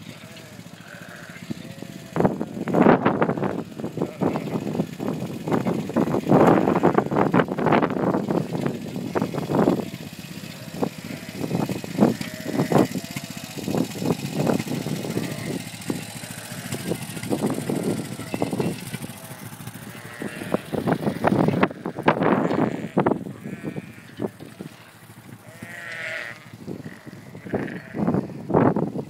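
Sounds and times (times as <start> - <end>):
quad bike engine running: 0.0 - 29.0
sheep bleating: 0.1 - 4.9, 6.2 - 7.4, 10.6 - 13.5, 14.8 - 24.8, 25.4 - 28.4
low thumps and rumbles: 0.9 - 29.0.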